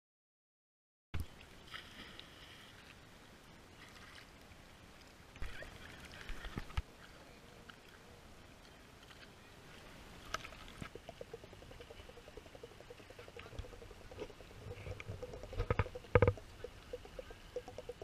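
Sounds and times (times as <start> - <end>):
sea water lapping and splashing: 1.3 - 6.7, 9.1 - 18.0
sharp knocks: 13.5 - 16.4.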